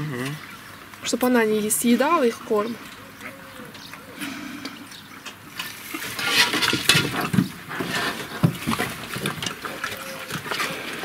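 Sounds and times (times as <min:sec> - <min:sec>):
pigs crunching pellet feed: 0:04.9 - 0:11.0.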